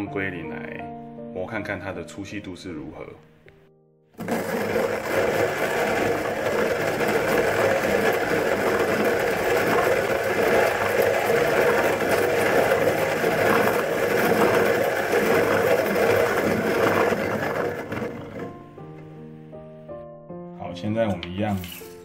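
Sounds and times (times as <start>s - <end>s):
hand coffee grinder grinding beans: 4.2s - 18.7s, 21.5s - 22.0s.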